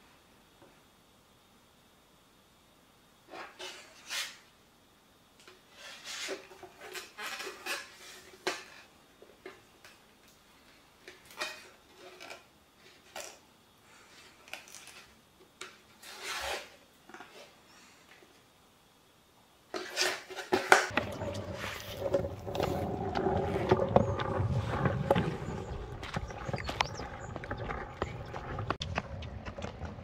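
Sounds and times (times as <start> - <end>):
skateboard wheels rolling: 19.8 - 30.0.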